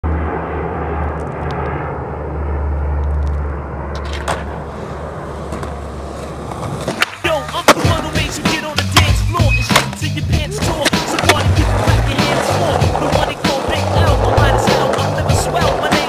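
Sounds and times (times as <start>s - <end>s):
low outdoor rumble: 0.0s - 6.9s, 10.3s - 16.0s.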